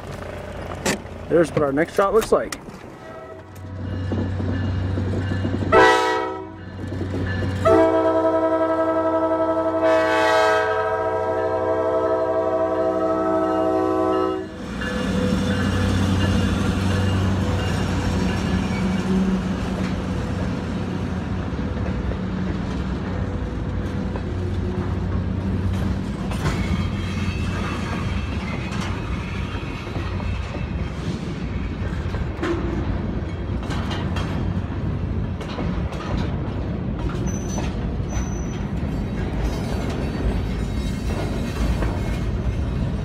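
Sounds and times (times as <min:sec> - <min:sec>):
locomotive engine droning: 0:00.0 - 0:43.0
locomotive air horn blasts: 0:05.7 - 0:06.6, 0:07.6 - 0:14.6.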